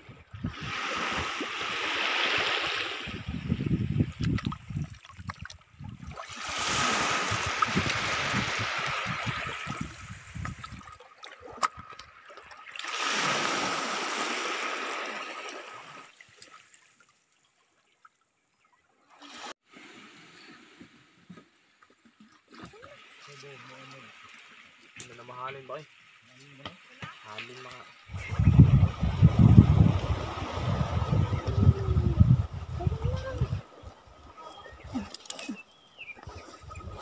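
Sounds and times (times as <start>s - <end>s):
seawater trickling among rocks: 4.0s - 18.4s, 19.2s - 28.4s, 32.6s - 37.0s.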